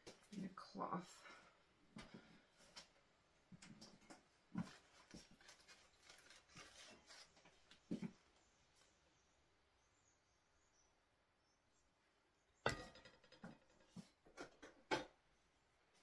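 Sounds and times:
plastic piping bag crinkling: 5.0s - 7.4s.

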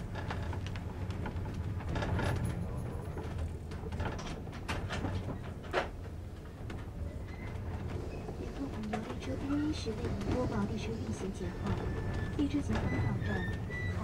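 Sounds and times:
train rumble inside carriage: 0.0s - 14.0s.

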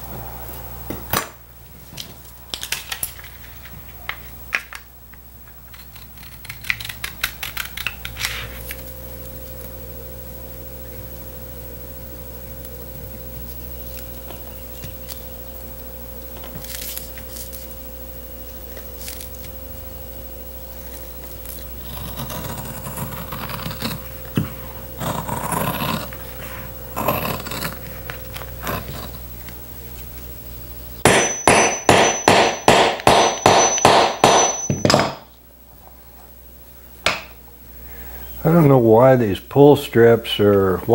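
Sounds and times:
hammer striking hole punch: 31.0s - 35.3s.

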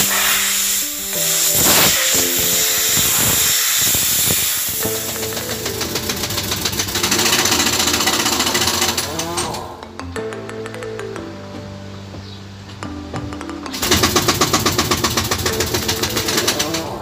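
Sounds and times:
fast even ticking: 0.0s - 9.6s, 13.4s - 17.0s
steady loud hiss: 0.0s - 10.0s
background music: 0.0s - 17.0s.

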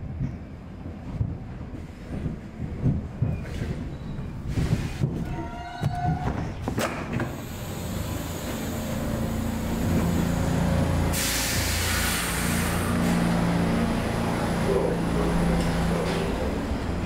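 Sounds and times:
train low hum: 0.0s - 17.0s
compressed-air hiss: 7.3s - 10.4s, 11.1s - 13.2s.

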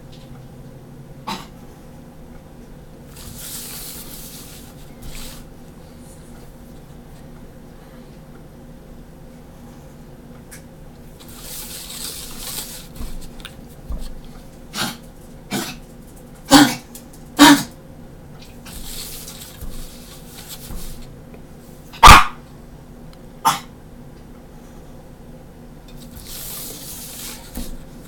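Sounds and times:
pencil scratching on paper: 3.1s - 5.5s
small dog yapping: 22.0s - 22.4s.

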